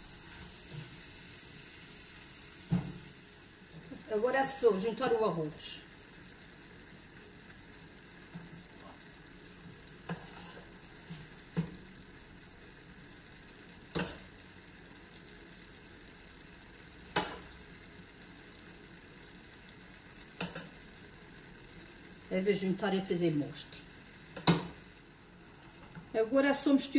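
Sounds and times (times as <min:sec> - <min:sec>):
food sizzling in a wok: 0:00.0 - 0:26.9.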